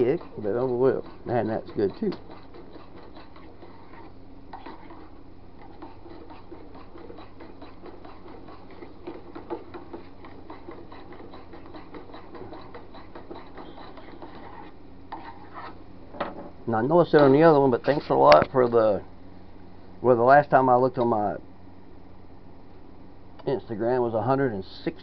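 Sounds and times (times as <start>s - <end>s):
rod clicking and scraping in saucepan: 0.0s - 15.7s
low steady hum: 0.0s - 25.0s.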